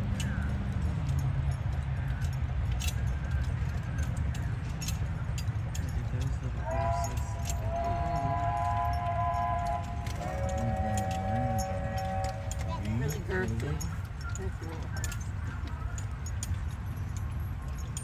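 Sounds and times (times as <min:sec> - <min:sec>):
harness chains jingling: 0:00.0 - 0:18.0.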